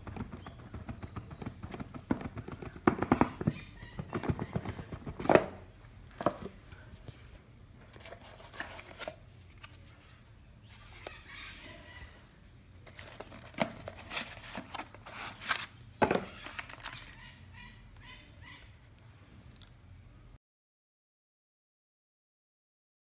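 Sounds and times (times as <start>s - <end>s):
cardboard box being handled: 12.8s - 17.1s.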